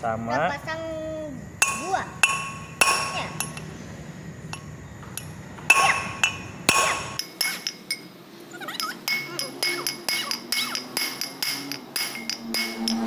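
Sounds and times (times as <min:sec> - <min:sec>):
hammer striking metal stud: 0:05.7 - 0:07.8, 0:09.1 - 0:13.0.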